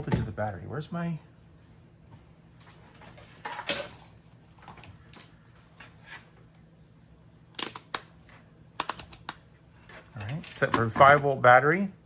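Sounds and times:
tool clattering on a workbench: 0:03.0 - 0:04.1, 0:09.9 - 0:11.4.

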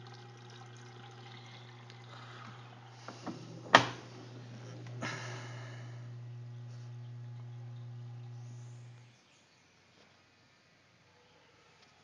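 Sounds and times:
water trickling: 0:00.0 - 0:03.2, 0:06.2 - 0:09.0
washing machine hum: 0:00.0 - 0:09.2.

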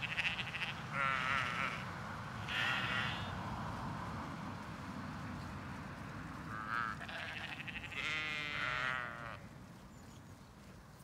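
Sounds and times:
sheep bleating: 0:00.0 - 0:03.3, 0:06.5 - 0:09.4.

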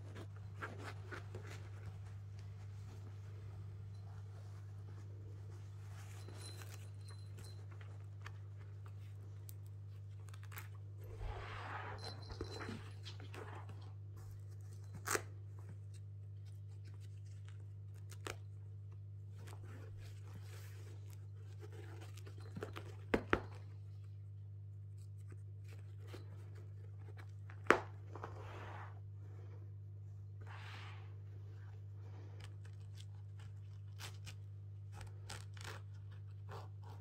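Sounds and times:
fabric rustling and tearing: 0:32.6 - 0:37.0.

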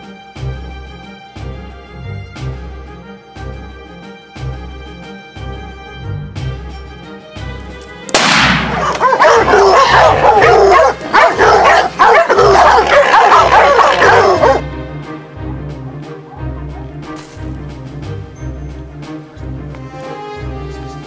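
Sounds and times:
background music with steady beat: 0:00.0 - 0:21.0
dogs barking and yelping: 0:08.7 - 0:14.6.

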